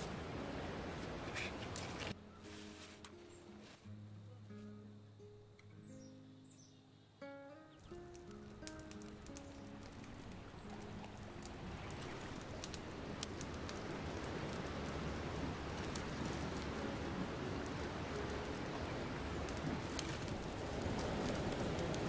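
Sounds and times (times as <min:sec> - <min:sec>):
twig fire crackling: 0:00.0 - 0:22.0
background music: 0:02.2 - 0:12.2.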